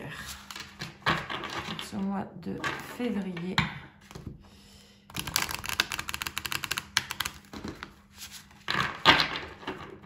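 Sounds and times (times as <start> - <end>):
cards being riffle-shuffled: 5.1 - 9.0.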